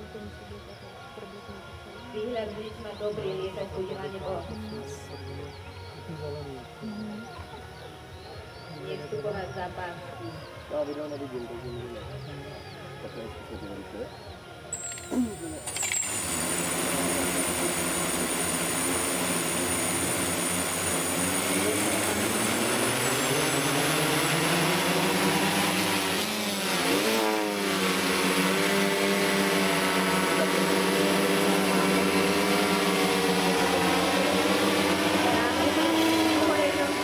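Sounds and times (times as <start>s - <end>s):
drone propellers whining: 14.7s - 37.0s.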